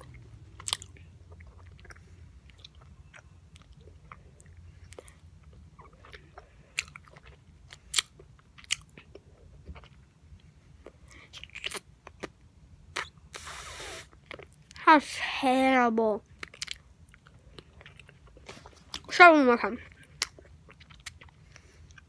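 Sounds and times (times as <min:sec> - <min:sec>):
wet gum chewing smacks: 0:00.0 - 0:13.4.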